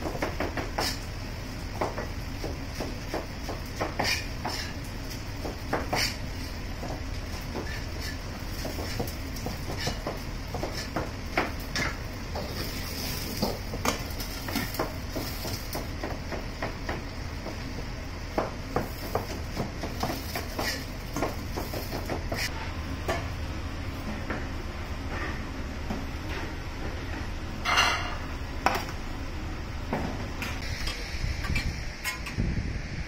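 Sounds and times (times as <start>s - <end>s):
cleaver chopping on a cutting board: 1.8s - 4.7s, 5.4s - 6.2s, 18.3s - 22.5s.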